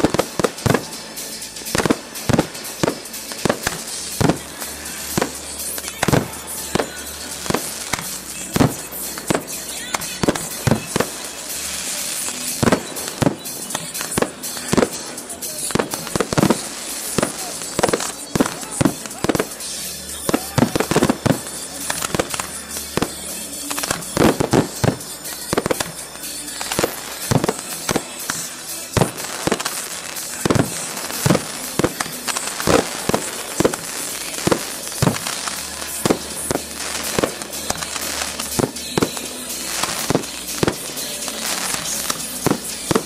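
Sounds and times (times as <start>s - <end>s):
fireworks bursting: 0.0s - 43.0s.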